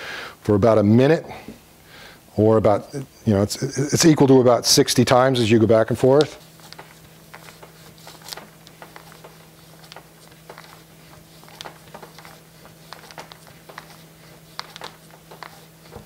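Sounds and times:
faint steady hum: 0:00.0 - 0:16.0
plastic pouch crinkling: 0:06.4 - 0:16.0.

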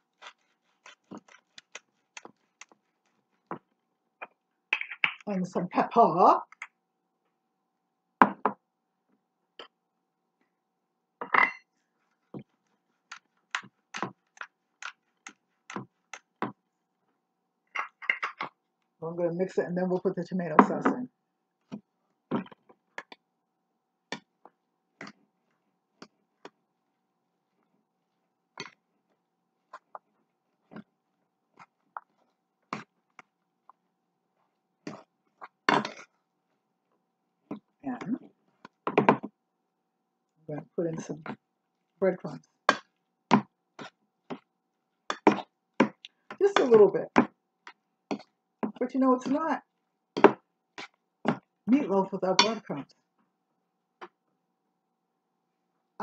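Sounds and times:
meat mixture squelching in bowl: 0:00.0 - 0:03.5.

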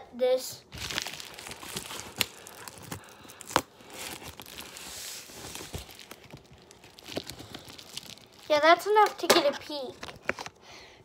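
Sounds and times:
envelope rustling and crinkling: 0:00.7 - 0:09.1.

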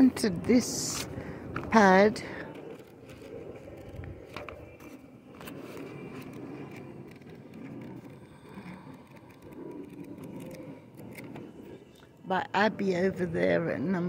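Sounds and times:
distant traffic rumble: 0:00.0 - 0:14.0.

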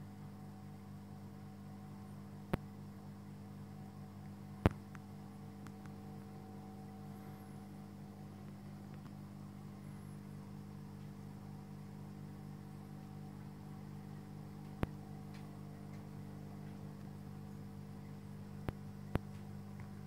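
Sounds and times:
electrical hum: 0:00.0 - 0:20.0
faint ticks: 0:14.6 - 0:17.2, 0:18.6 - 0:20.0.

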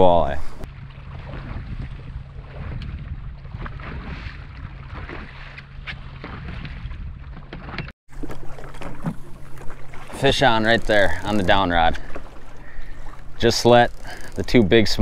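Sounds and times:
water noise: 0:00.0 - 0:15.0
wind: 0:00.0 - 0:15.0
outboard motor humming: 0:08.1 - 0:15.0
fishing rods knocking and clicking: 0:10.1 - 0:12.6, 0:13.4 - 0:15.0.

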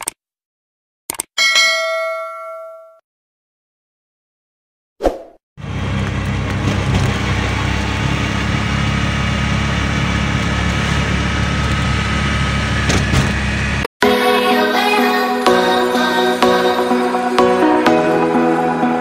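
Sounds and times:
auto-rickshaw engine running: 0:05.6 - 0:13.9
road rumble: 0:05.6 - 0:13.9
music: 0:14.0 - 0:19.0.

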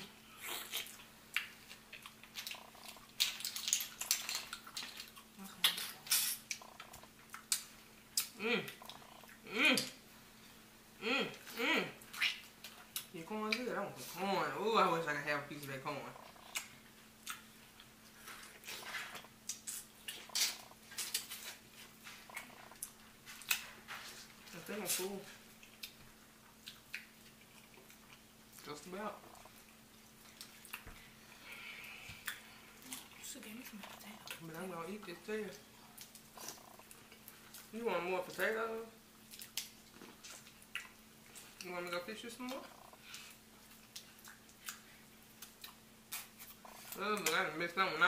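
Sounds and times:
wet chewing smacks and clicks: 0:00.4 - 0:09.9, 0:16.2 - 0:24.0, 0:25.4 - 0:31.1, 0:35.5 - 0:37.7, 0:39.2 - 0:41.7, 0:42.4 - 0:47.4.

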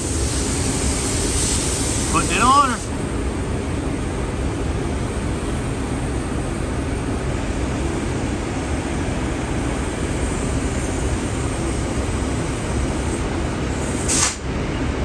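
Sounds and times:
spray gun hissing: 0:00.0 - 0:02.9, 0:13.8 - 0:14.4
ventilation roar: 0:00.0 - 0:15.0.

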